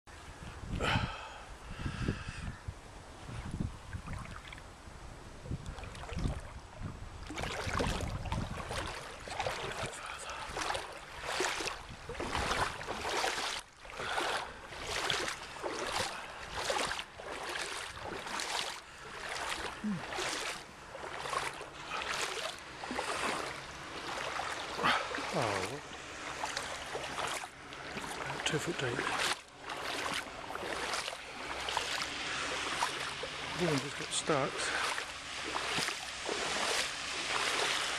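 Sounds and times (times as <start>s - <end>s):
wind rumble on microphone: 0.1s - 13.6s
footsteps wading through water: 3.2s - 4.8s, 5.4s - 37.9s.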